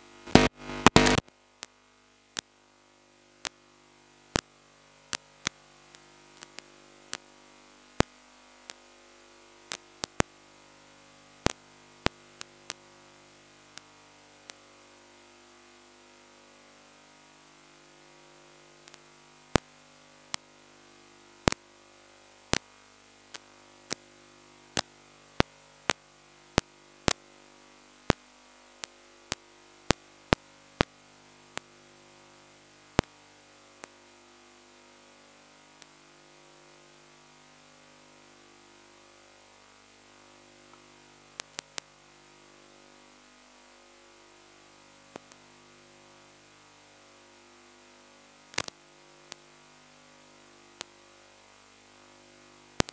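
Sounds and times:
room noise hiss and hum: 0.0 - 52.9
sharp short clicks: 0.2 - 1.2.

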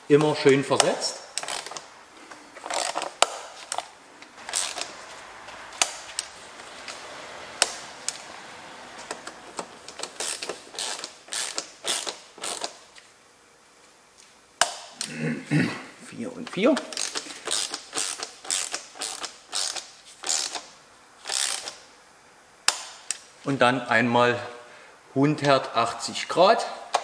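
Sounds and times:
ratchet wrench clicking: 0.8 - 1.9, 2.6 - 3.8, 4.4 - 5.0, 5.8 - 7.0, 7.6 - 8.2, 9.1 - 12.8, 16.8 - 21.8.

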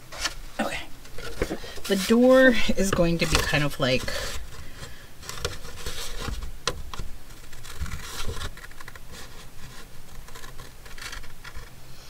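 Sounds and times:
paper rustling: 0.0 - 0.4, 1.0 - 11.8
scissors snipping paper: 7.3 - 11.7.

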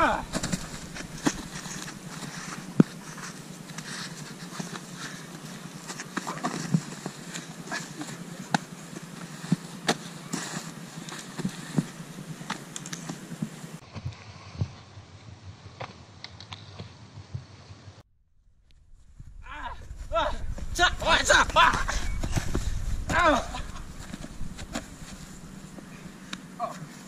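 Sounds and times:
bodies knocking and rustling on grass: 0.0 - 14.9, 19.9 - 27.0
steady hiss: 0.0 - 14.9.

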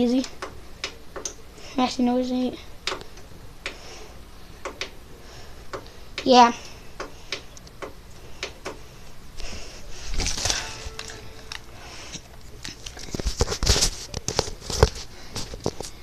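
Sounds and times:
rustling: 9.4 - 16.0.

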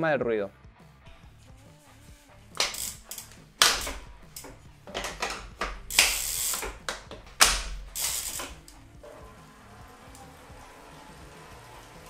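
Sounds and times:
bike chain rattling and whirring: 2.6 - 12.0.

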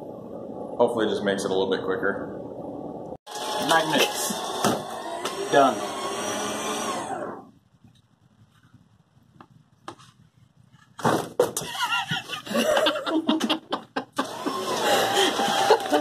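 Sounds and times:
wavering mechanical whine: 2.8 - 7.6.

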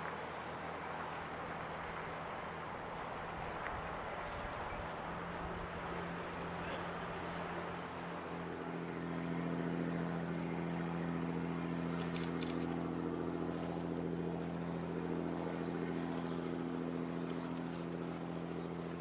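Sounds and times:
ship engines droning: 0.0 - 19.0
faint clicks: 12.0 - 12.9.

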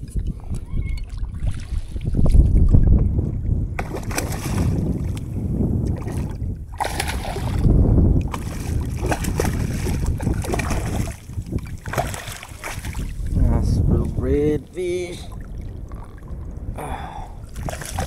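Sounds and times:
wind rumble on microphone: 0.0 - 18.0
fish splashing at water surface: 6.0 - 7.7, 8.3 - 13.2, 17.5 - 18.0.

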